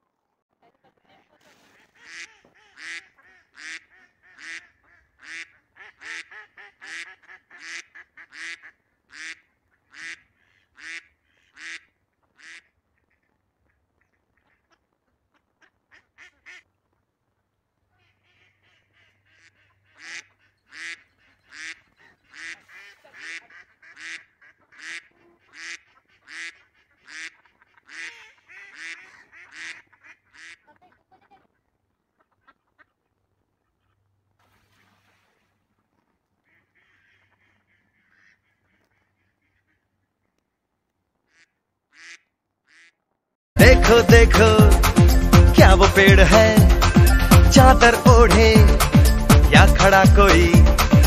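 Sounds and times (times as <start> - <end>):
waterfowl calling: 1.5 - 16.7, 17.9 - 40.5, 41.2 - 43.0.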